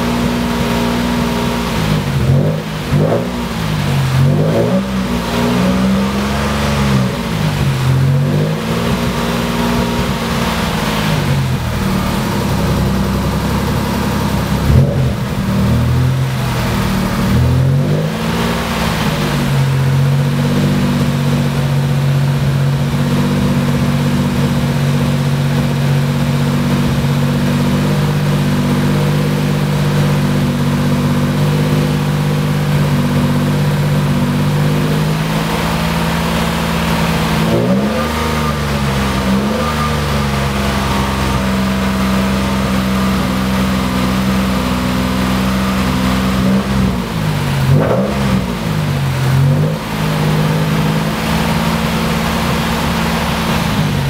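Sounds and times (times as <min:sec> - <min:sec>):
car engine revving and idling: 0:00.0 - 0:54.0.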